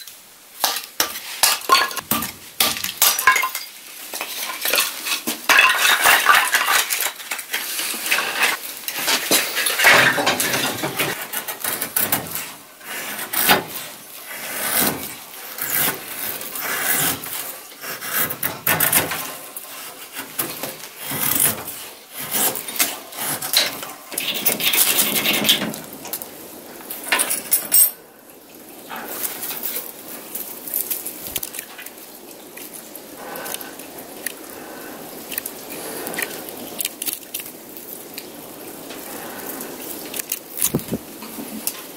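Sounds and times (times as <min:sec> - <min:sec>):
kindling sticks clattering: 0:00.0 - 0:12.2, 0:26.9 - 0:28.0
knife shaving wood: 0:11.1 - 0:19.1, 0:39.2 - 0:41.8.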